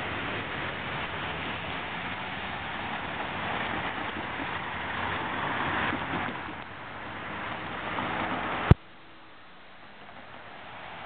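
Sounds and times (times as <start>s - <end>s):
freight train wheels on rail: 0.0s - 8.8s.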